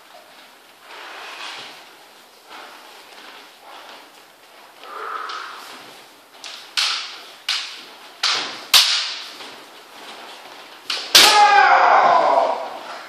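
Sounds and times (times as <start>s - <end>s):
bamboo swords clacking: 1.5s - 13.0s
person shouting: 11.2s - 13.0s.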